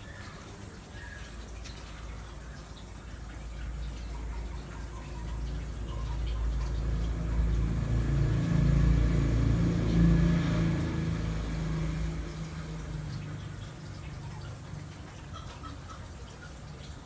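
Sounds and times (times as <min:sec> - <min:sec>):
vehicle engine rumbling: 0:03.8 - 0:16.0.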